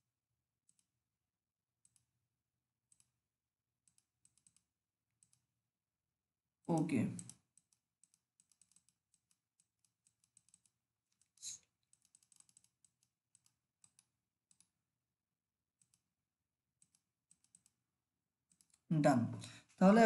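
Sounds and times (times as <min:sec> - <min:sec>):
mouse and keyboard clicks: 0:02.9 - 0:03.1, 0:03.9 - 0:04.6, 0:06.7 - 0:14.7, 0:15.8 - 0:16.0, 0:16.8 - 0:17.8, 0:18.5 - 0:18.9.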